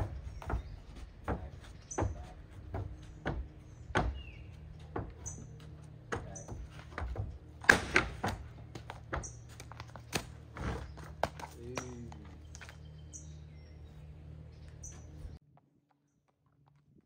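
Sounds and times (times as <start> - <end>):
hooves knocking on trailer floor: 0.0 - 12.8
birds chirping: 0.0 - 15.4.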